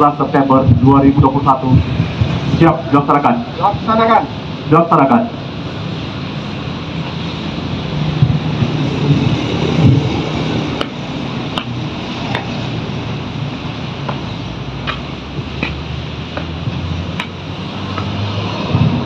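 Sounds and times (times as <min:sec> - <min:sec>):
road traffic: 0:00.0 - 0:19.0
wind on microphone: 0:00.5 - 0:03.9, 0:06.0 - 0:19.0
sharp taps: 0:10.8 - 0:12.6, 0:14.0 - 0:18.1.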